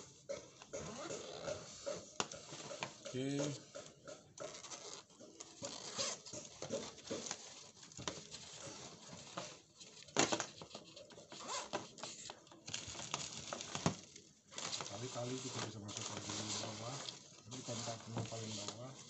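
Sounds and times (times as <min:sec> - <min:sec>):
bag and straps rustling: 0:11.3 - 0:19.0.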